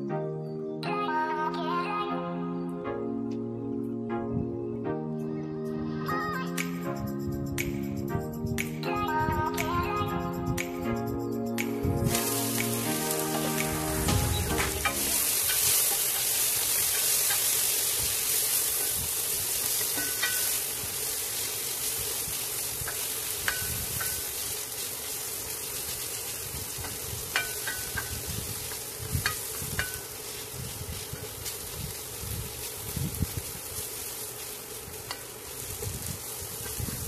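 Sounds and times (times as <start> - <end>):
vegetables sizzling in hot oil: 11.8 - 37.0.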